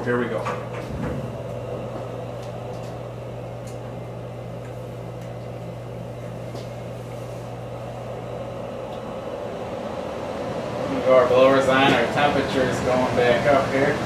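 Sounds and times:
heating system humming: 0.0 - 14.0.

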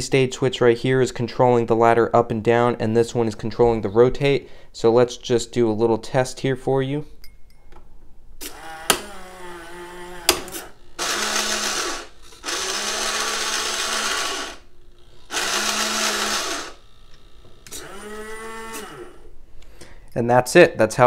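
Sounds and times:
toy gearbox motor whirring: 8.6 - 19.2.

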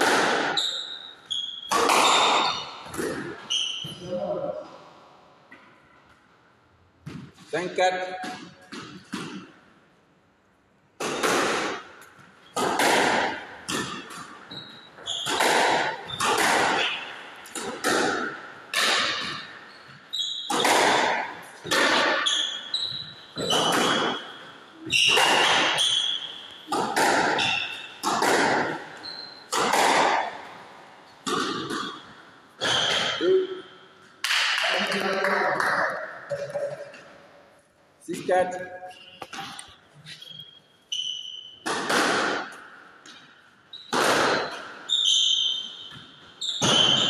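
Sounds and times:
squash ball hit by rackets: 0.0 - 0.9, 1.6 - 3.6, 8.0 - 9.6, 11.0 - 33.3, 34.2 - 34.8, 41.4 - 44.8, 45.5 - 47.0
shoes squeaking on court floor: 0.0 - 4.7, 11.7 - 34.2, 36.3 - 47.0.

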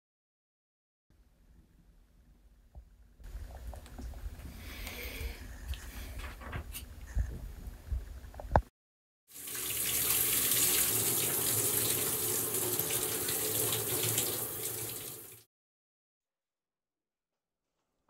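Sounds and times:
shower water spraying: 9.3 - 15.4.

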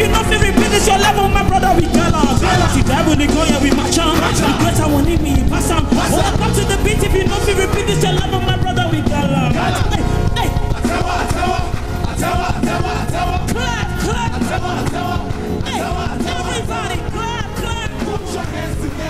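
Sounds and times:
song with singing over a beat: 0.0 - 19.0.

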